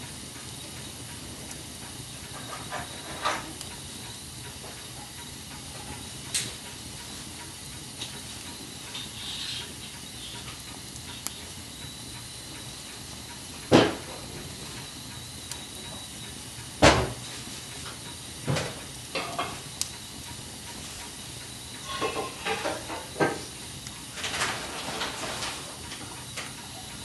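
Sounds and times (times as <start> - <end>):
fire hissing and crackling: 0.0 - 27.0
small snaps from fire: 0.0 - 27.0
loud pops from fire: 13.6 - 14.6.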